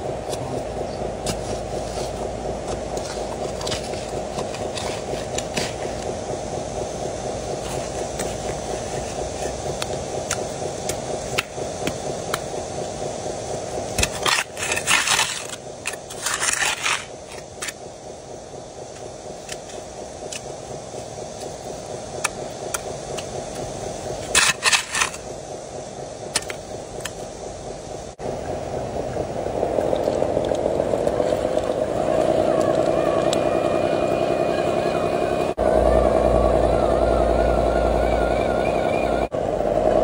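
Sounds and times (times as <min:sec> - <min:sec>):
electric motor humming: 0:00.0 - 0:40.0.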